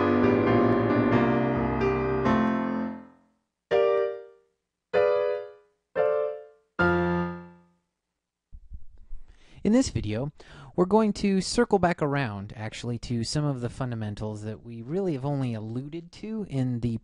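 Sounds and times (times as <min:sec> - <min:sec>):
piano chords: 0:00.0 - 0:07.8
piano jingle: 0:00.0 - 0:07.8.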